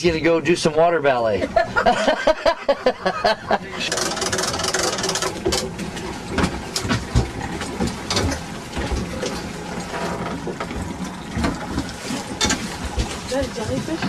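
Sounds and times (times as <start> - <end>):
outboard motor idling: 0.0 - 14.0.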